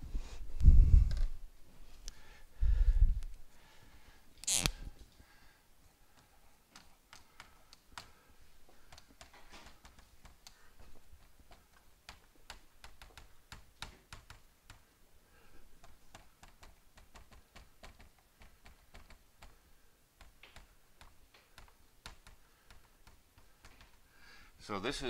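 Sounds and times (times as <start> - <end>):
marker tapping on whiteboard: 7.2 - 14.9, 15.8 - 19.6, 20.2 - 24.0.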